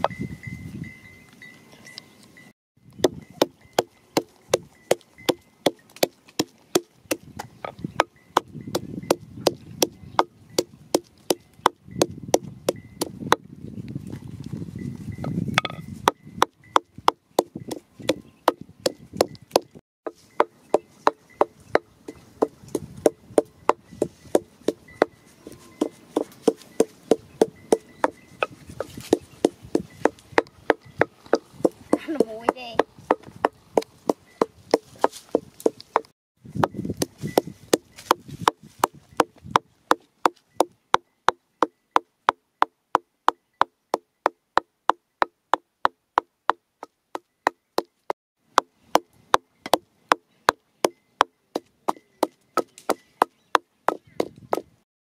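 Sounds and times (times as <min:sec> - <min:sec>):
pestle knocking in wooden mortar: 0:03.0 - 0:13.5.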